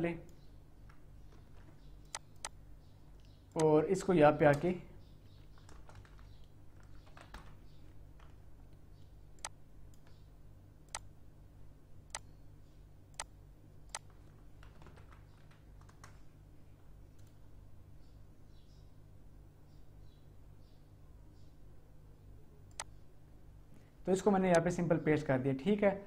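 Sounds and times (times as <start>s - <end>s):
steady low hum: 0.0s - 26.0s
mouse clicks: 1.3s - 2.6s, 22.7s - 23.0s
keyboard keystrokes: 5.5s - 8.4s, 13.9s - 16.2s.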